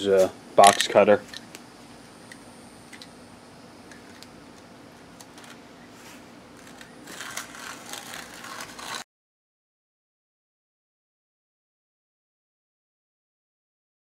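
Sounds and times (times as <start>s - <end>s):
low steady hum: 0.0s - 9.0s
blade scraping leaf: 5.3s - 9.0s.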